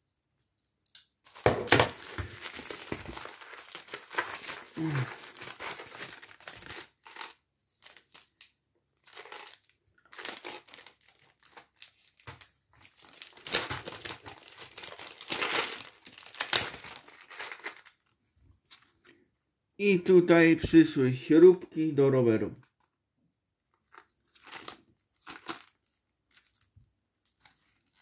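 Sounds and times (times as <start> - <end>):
plastic packaging crinkling: 1.3 - 18.1, 23.8 - 28.0.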